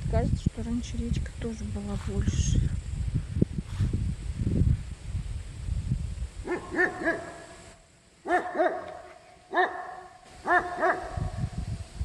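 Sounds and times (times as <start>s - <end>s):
low rumble on microphone: 0.0s - 7.8s, 10.4s - 12.0s
dog barking: 6.4s - 7.5s, 8.2s - 11.4s.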